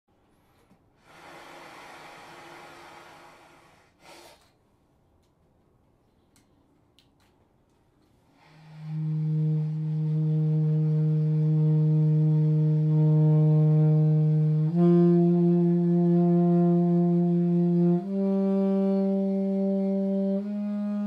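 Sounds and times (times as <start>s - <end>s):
breathy rush of air: 1.0s - 4.5s.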